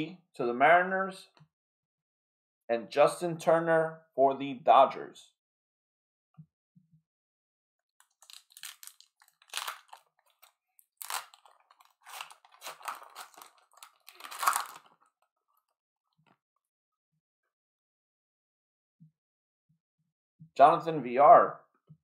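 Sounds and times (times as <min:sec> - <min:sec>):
plastic wrapper tearing and crinkling: 0:08.0 - 0:15.2.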